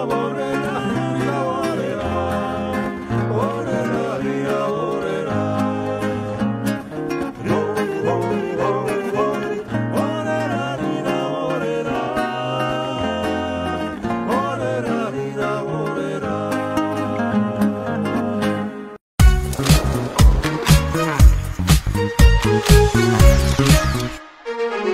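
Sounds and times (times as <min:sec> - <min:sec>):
men singing: 0:00.0 - 0:19.0
acoustic guitars playing: 0:00.0 - 0:24.9.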